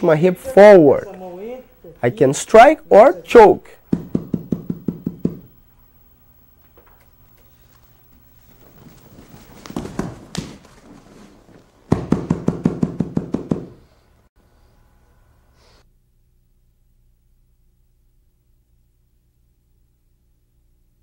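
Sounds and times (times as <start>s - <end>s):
grapplers scuffling on a mat: 7.3s - 12.3s.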